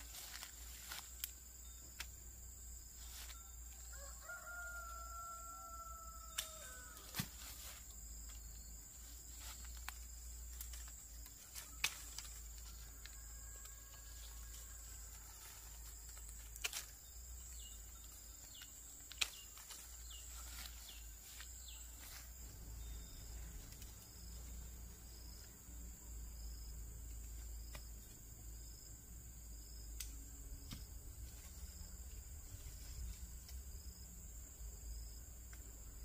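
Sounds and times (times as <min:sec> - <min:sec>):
insects chirring: 0:00.0 - 0:36.0
rooster crowing: 0:03.8 - 0:07.2, 0:12.8 - 0:16.0.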